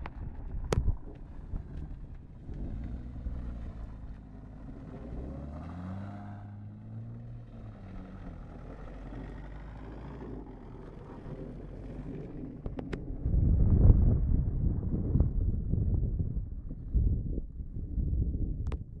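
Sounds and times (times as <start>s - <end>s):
car engine accelerating: 0.0s - 13.4s.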